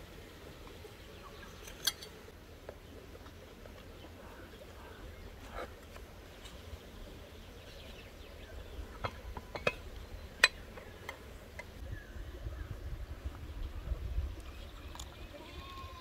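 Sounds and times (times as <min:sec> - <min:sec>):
metal utensil clinking on plate: 0:01.7 - 0:02.2.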